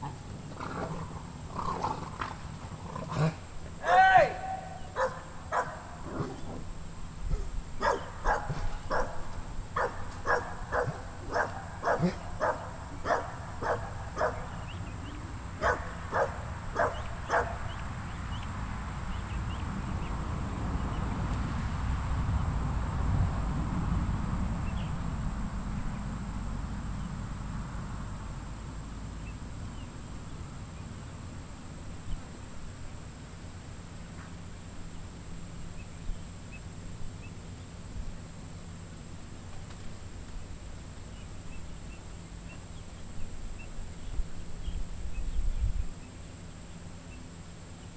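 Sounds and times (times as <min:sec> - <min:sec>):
steady high whine: 0:00.0 - 0:47.9
dog barking: 0:04.9 - 0:06.0, 0:07.8 - 0:14.6, 0:15.6 - 0:17.6.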